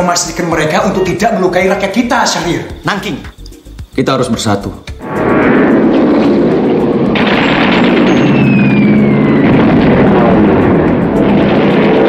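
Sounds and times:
propeller plane engines droning: 0:05.7 - 0:12.0
falling whistle: 0:07.3 - 0:10.4.

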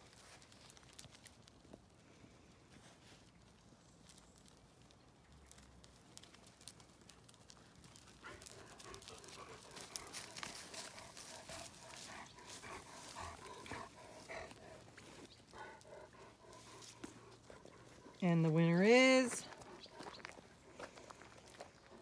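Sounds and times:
dogs growling: 0:08.2 - 0:18.2.

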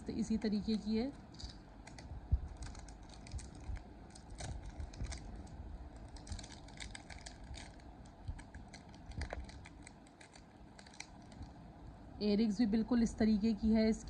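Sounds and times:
plastic pouch crinkling: 0:01.3 - 0:11.6.

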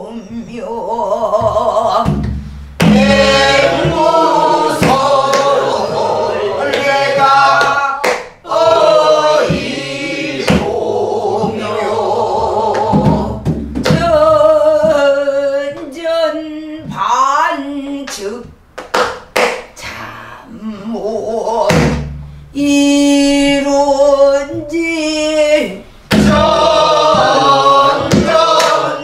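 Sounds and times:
barrel drum strokes: 0:01.4 - 0:07.5, 0:08.5 - 0:15.0, 0:26.1 - 0:29.0
group singing slow wavering lines: 0:02.8 - 0:13.5, 0:22.8 - 0:29.0.

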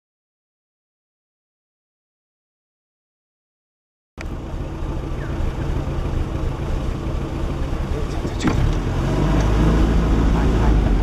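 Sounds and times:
jeep engine idling: 0:04.2 - 0:11.0.

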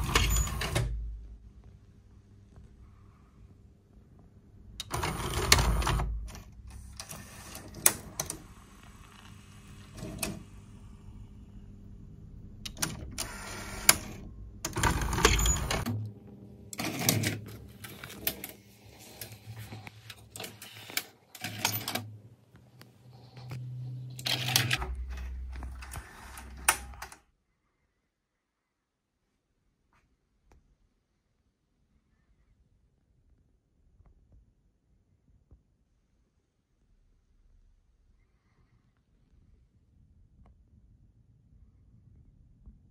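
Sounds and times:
mechanism clicks and clunks: 0:00.0 - 0:01.3, 0:04.8 - 0:10.6, 0:12.6 - 0:27.2.

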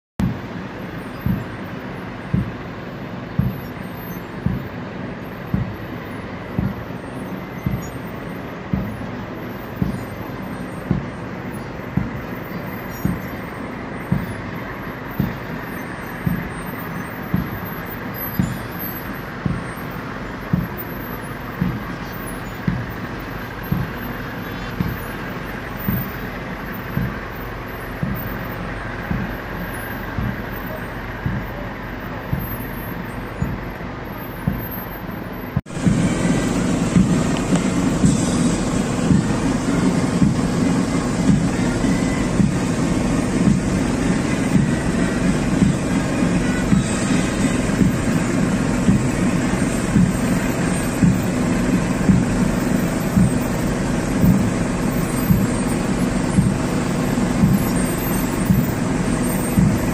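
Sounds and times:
steady outdoor rumble: 0:00.0 - 0:59.9
bass drum beating: 0:00.2 - 0:14.5, 0:15.1 - 0:31.6, 0:32.2 - 0:32.6, 0:35.6 - 0:59.9.

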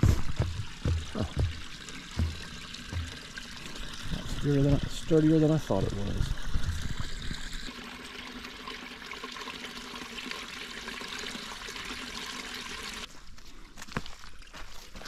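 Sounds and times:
creek water running: 0:00.0 - 0:13.1.

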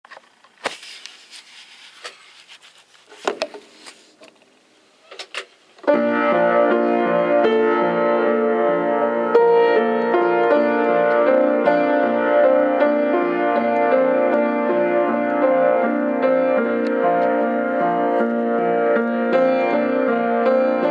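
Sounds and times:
upright piano playing: 0:05.8 - 0:20.9.

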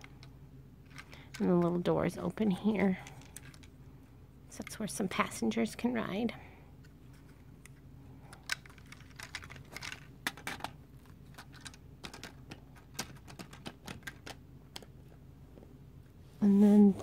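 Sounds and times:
plastic toy clicks and clacks: 0:11.4 - 0:14.9.

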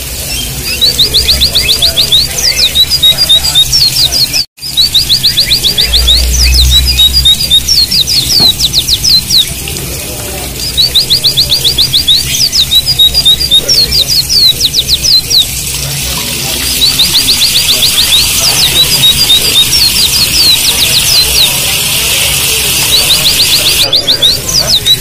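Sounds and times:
bird song trills: 0:00.0 - 0:09.9, 0:10.5 - 0:25.0
running water hiss: 0:07.4 - 0:24.7.

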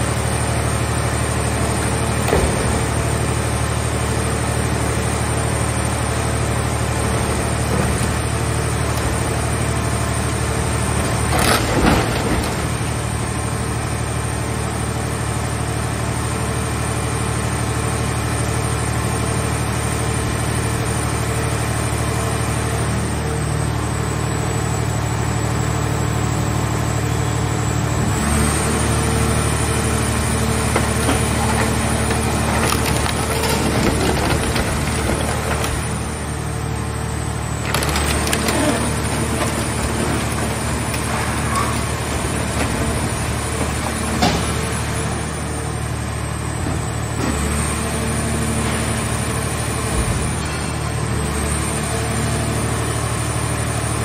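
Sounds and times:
hydraulic power unit engine running: 0:00.0 - 0:54.0
car-body metal crumpling crash: 0:30.6 - 0:36.2, 0:37.6 - 0:45.0.

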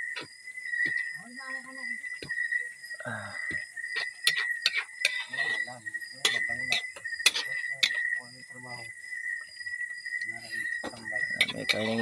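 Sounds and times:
cricket trill: 0:00.0 - 0:12.0
spatula scraping steel wok: 0:04.0 - 0:08.0, 0:11.3 - 0:12.0.

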